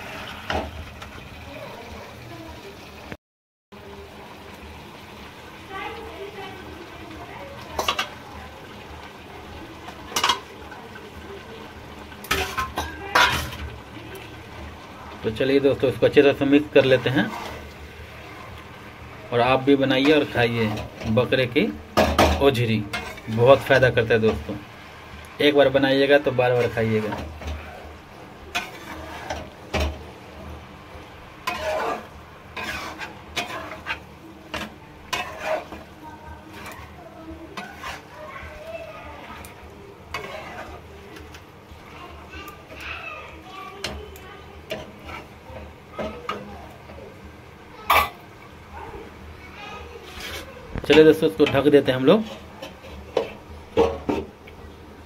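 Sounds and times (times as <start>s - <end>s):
low frying sizzle: 0.0s - 55.0s
metal spatula scraping a pan: 7.6s - 8.2s, 9.9s - 10.8s, 12.2s - 14.7s, 15.3s - 18.6s, 19.4s - 24.6s, 25.4s - 30.1s, 31.4s - 42.8s, 43.8s - 47.1s, 50.0s - 54.3s.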